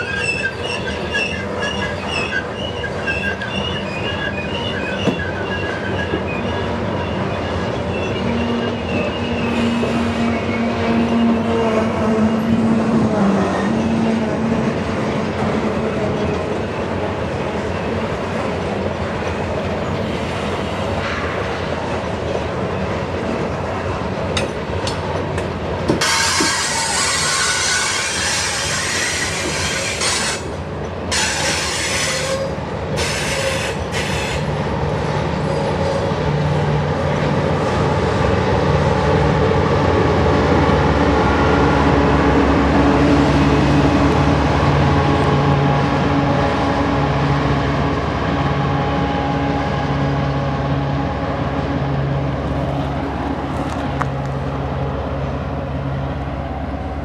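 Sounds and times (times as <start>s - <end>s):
train wheels clattering and squealing: 0.0s - 12.6s, 17.6s - 34.6s, 35.3s - 38.4s
locomotive engine drone: 0.0s - 57.0s.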